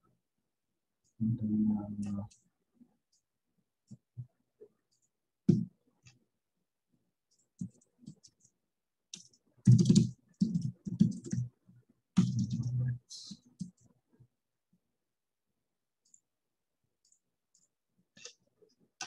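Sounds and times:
typing on a computer keyboard: 7.3 - 11.6, 12.2 - 12.7, 17.0 - 19.0.

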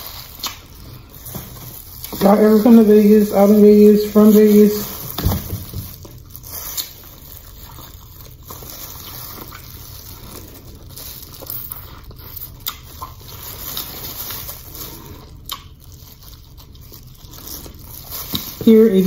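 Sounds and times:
plastic gloves crinkling: 0.0 - 19.0
wet chewing and lip-smacking: 0.1 - 1.1, 6.0 - 13.4, 15.0 - 18.4.

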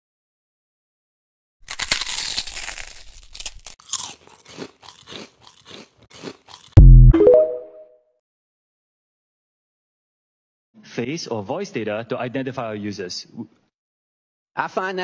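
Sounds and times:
person crunching food: 1.6 - 6.8
deep boom with higher tones: 6.8 - 7.2.

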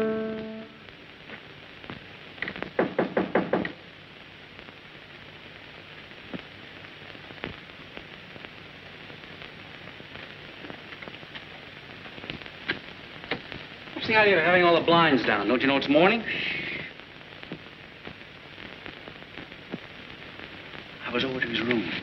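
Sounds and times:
film soundtrack hiss and crackle: 0.0 - 22.0.

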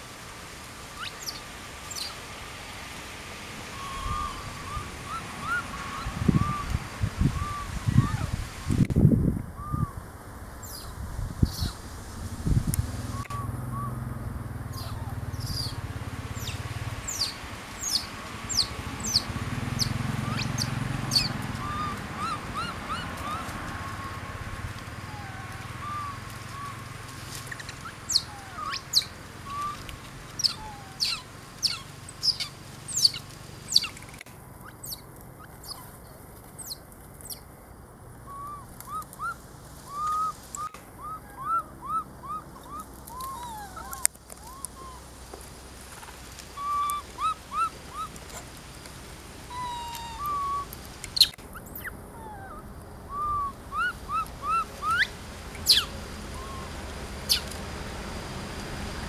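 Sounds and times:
monkeys squeaky calls: 3.7 - 6.7, 14.7 - 15.8, 16.4 - 24.2, 25.0 - 35.9, 38.3 - 45.0, 46.6 - 48.1, 49.5 - 56.7, 57.3 - 57.5.

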